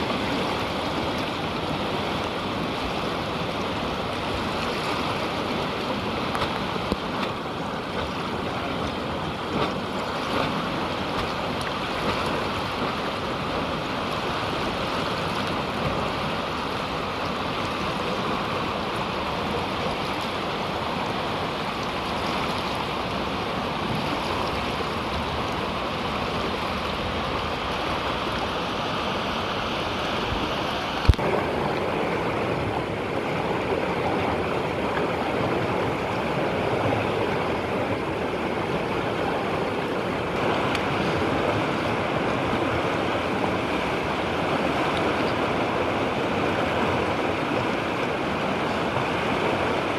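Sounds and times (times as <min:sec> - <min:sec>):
whitewater rushing: 0:00.0 - 0:49.9.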